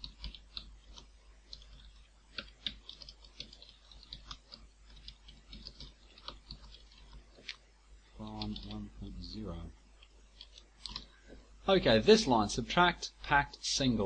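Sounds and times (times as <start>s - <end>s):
typing on keyboard: 0.0s - 7.3s, 10.4s - 11.1s.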